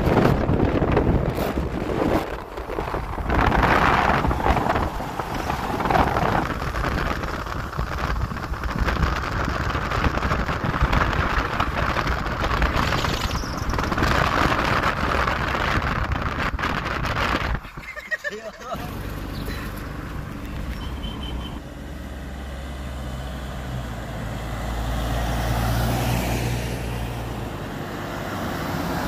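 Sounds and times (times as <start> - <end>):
wind buffeting microphone: 0.0 - 17.9
road and engine rumble: 0.0 - 29.0.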